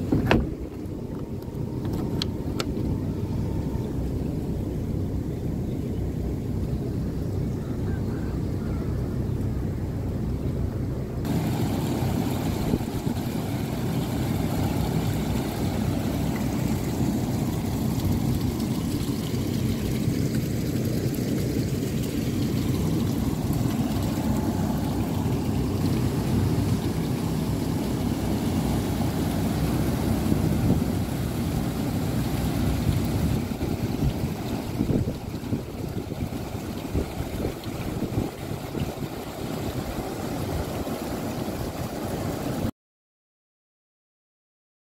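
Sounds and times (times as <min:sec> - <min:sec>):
cooling tower fans: 0:00.0 - 0:42.7
falling water: 0:11.2 - 0:42.7.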